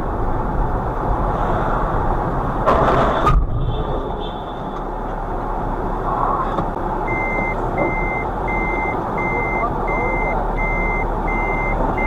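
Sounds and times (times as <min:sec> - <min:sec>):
vehicle and road rumble: 0:00.0 - 0:12.0
truck reversing alarm beeping: 0:07.0 - 0:12.0.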